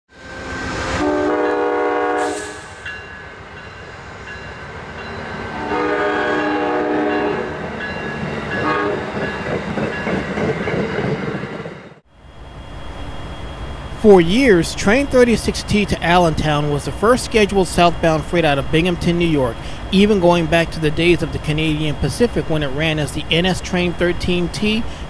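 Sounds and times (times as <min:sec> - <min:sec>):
passing train rumble and rattle: 0:00.1 - 0:25.0
locomotive air horn blasts: 0:00.3 - 0:02.8, 0:05.6 - 0:07.6, 0:08.6 - 0:09.1.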